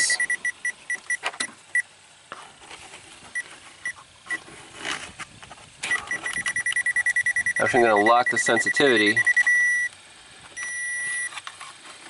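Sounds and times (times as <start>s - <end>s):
short high beeps: 0.0s - 1.2s, 5.9s - 9.9s, 10.6s - 11.4s.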